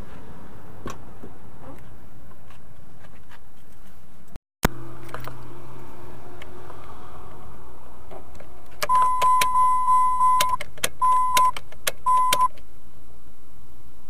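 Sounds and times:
ignition key clicks: 8.8 - 12.6
dashboard warning chime: 8.9 - 12.5.

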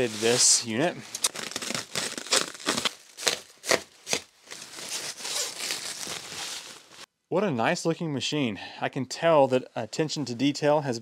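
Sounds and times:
plastic wrap crinkling: 0.0 - 7.1.

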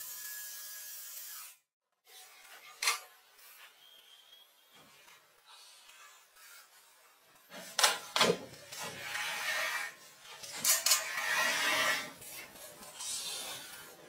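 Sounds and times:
stove scraping on blanket: 10.9 - 12.5.

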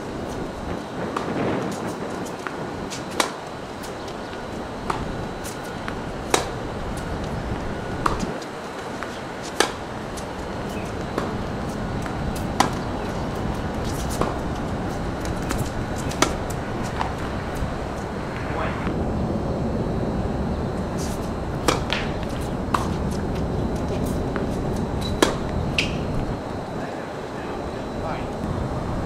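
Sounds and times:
tennis ball hit by rackets: 1.1 - 4.2, 4.8 - 6.6, 8.0 - 14.6, 15.2 - 17.4, 21.6 - 23.0, 24.0 - 26.0.

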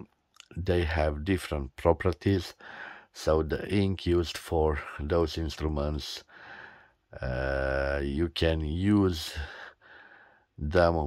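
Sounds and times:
man breathing in: 2.6 - 3.2, 6.3 - 7.1, 9.4 - 10.6
man saying uhh: 7.2 - 9.6.

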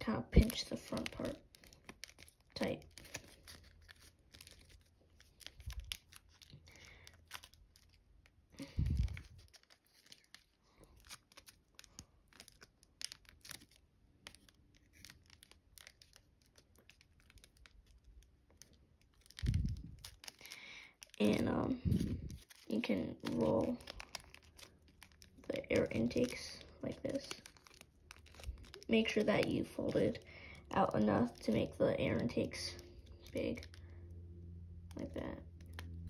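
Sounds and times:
paper crinkling: 0.0 - 36.0.

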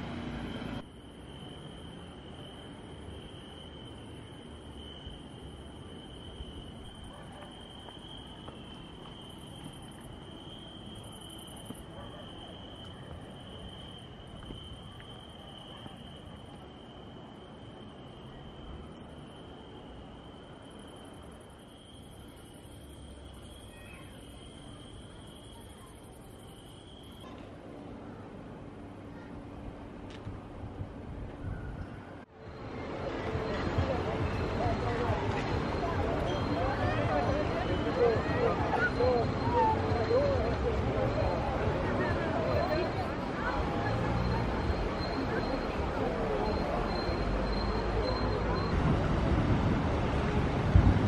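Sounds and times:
crickets chirping: 0.0 - 51.0
high insect trill: 0.8 - 27.3.

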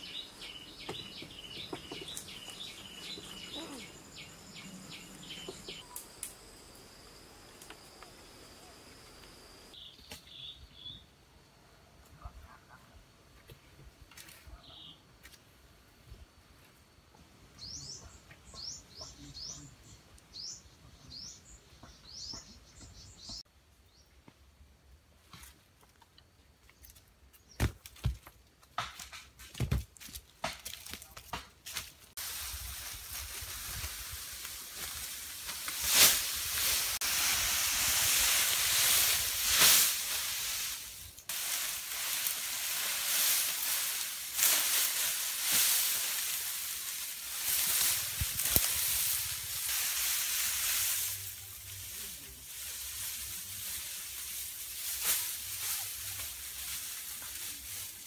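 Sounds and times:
footsteps on dry leaves and twigs: 29.0 - 58.0
leafy stalks rustling and crackling: 30.0 - 58.0.

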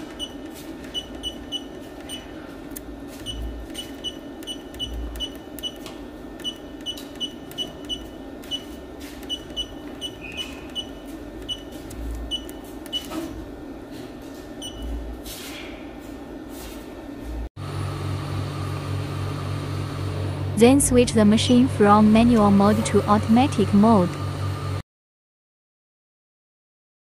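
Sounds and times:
steady low hum: 0.0 - 24.8
short high key-press beeps: 0.1 - 2.2, 3.2 - 5.8, 6.4 - 13.1, 14.6 - 14.9.

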